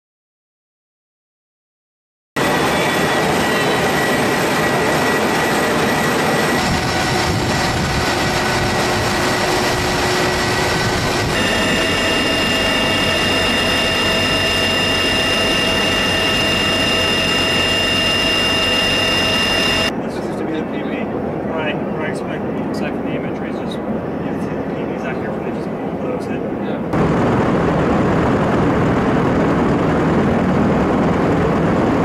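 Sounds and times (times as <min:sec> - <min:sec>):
helicopter rotor noise: 0:02.4 - 0:32.0
high turbine whines: 0:02.4 - 0:32.0.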